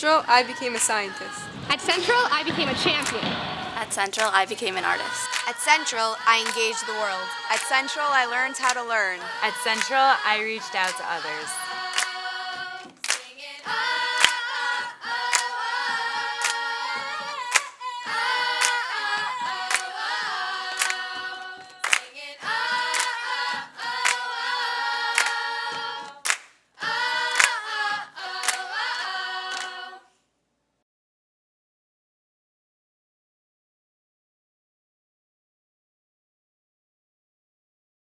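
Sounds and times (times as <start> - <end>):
girls' choir singing a cappella: 0.0 - 30.1
hand claps keeping the beat: 0.8 - 29.8.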